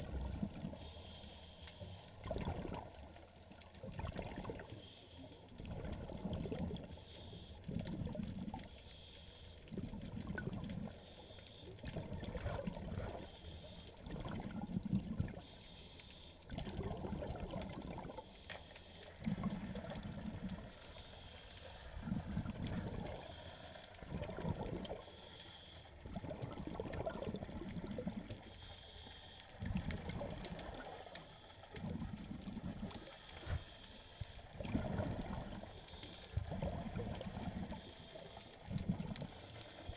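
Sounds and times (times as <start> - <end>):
faint hiss: 0.0 - 2.2, 24.9 - 26.2, 32.9 - 34.6, 35.2 - 39.9
underwater bubbling and sloshing: 0.0 - 39.9.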